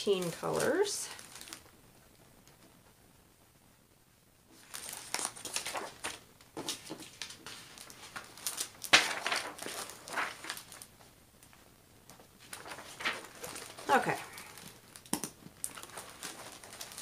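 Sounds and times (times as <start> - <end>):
papers crinkling and rustling: 0.1 - 1.8, 4.5 - 17.0.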